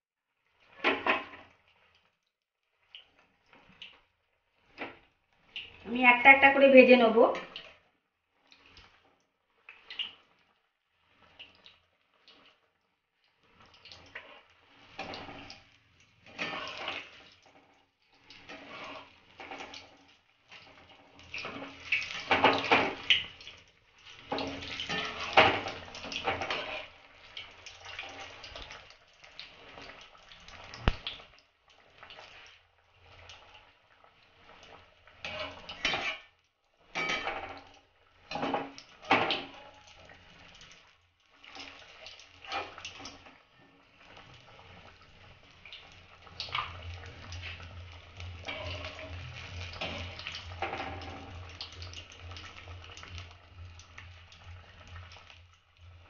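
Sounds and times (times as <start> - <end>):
food sizzling in hot oil: 13.3 - 56.0
metal spoon scraping pan: 16.3 - 17.1, 24.4 - 27.0, 35.2 - 36.3, 48.4 - 51.1.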